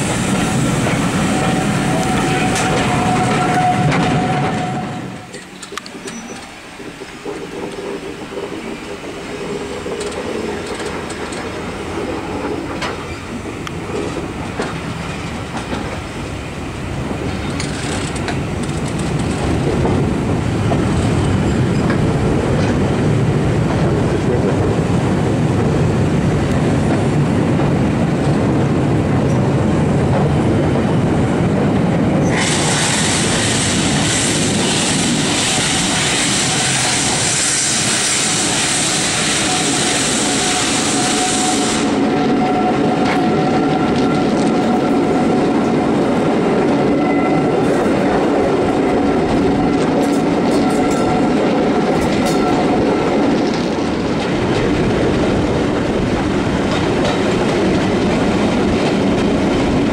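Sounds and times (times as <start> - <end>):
steam locomotive rushing past: 0.0 - 59.9
train running rumble: 0.0 - 59.9
wheel squeal: 6.0 - 6.5.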